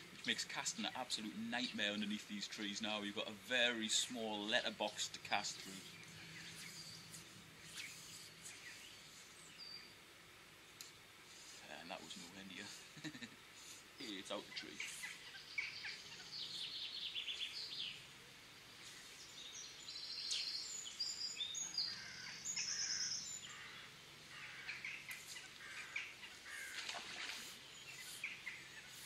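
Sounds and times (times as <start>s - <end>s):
songbirds singing: 0.0s - 29.0s.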